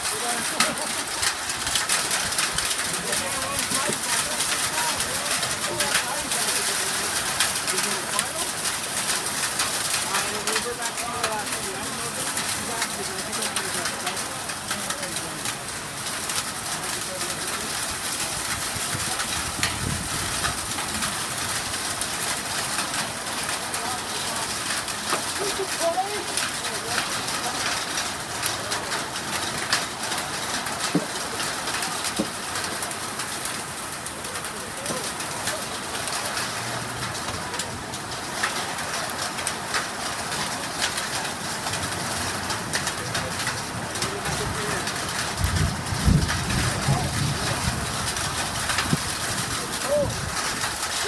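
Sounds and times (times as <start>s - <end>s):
heavy rain: 0.0s - 51.0s
wind: 0.0s - 51.0s
thunder rumbling: 44.3s - 50.9s.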